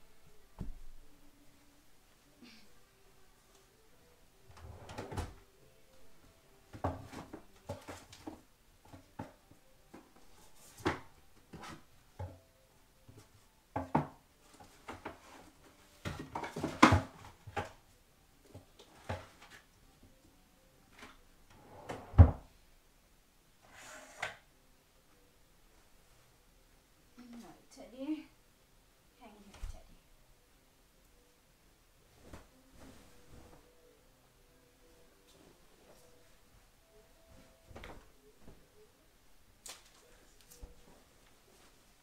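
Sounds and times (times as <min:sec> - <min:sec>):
bedding rustling: 0:32.0 - 0:34.0, 0:34.9 - 0:38.9.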